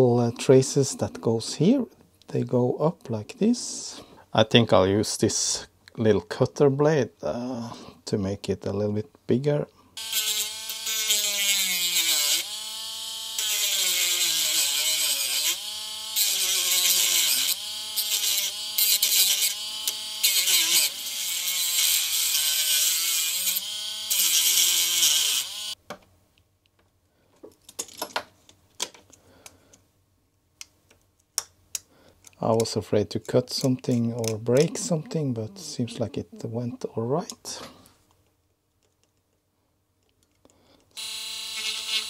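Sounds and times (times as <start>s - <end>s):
rotary tool grinding plastic: 10.0s - 25.8s, 41.0s - 42.0s.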